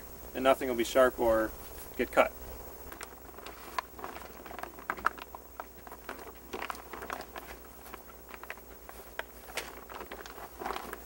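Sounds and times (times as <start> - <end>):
plastic sheeting rustling: 6.1 - 11.0.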